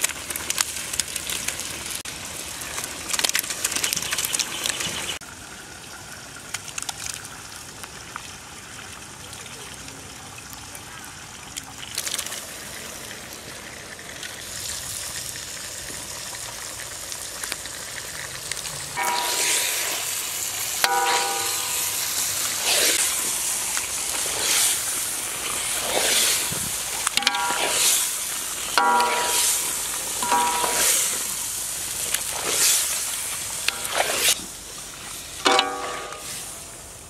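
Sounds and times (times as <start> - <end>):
fish sizzling in hot masala: 0.0 - 5.2, 11.9 - 37.0
ladle ringing against pan: 19.0 - 20.1, 20.8 - 22.2, 27.2 - 28.0, 28.8 - 31.4, 35.5 - 36.5
ladle stirring frying pieces: 19.0 - 36.7.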